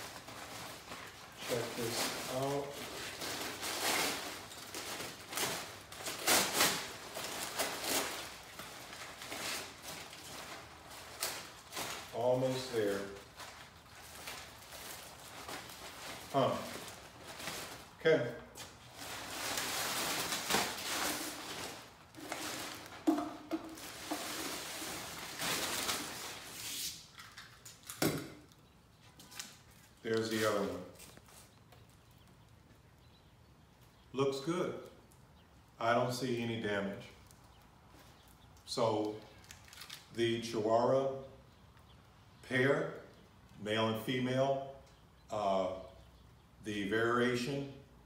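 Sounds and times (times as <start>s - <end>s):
packing paper crinkling: 0.0s - 18.0s, 18.6s - 27.9s, 39.3s - 40.2s.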